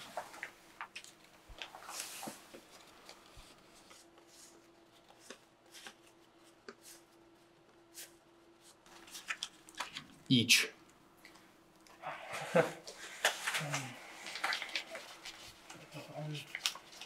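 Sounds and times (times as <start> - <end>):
paper banknotes rustling and flicking: 0.0 - 10.2, 12.9 - 17.0.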